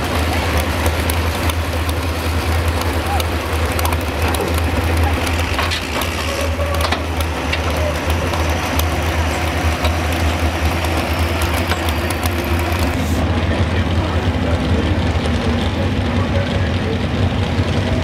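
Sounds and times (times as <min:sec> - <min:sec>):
crackling clatter of fast clicks: 0:00.0 - 0:13.0
heavy engines idling: 0:00.0 - 0:18.0.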